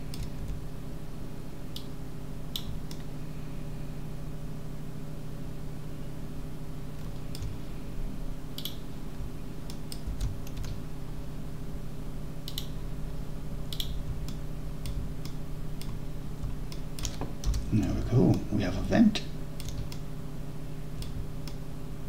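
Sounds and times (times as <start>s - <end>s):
keyboard and mouse clicking: 0.0s - 0.6s, 2.5s - 3.1s, 7.0s - 7.6s, 8.6s - 8.8s, 9.6s - 10.8s, 12.4s - 12.8s, 13.7s - 17.7s, 19.6s - 20.0s, 21.0s - 21.6s
low hum: 0.0s - 22.0s.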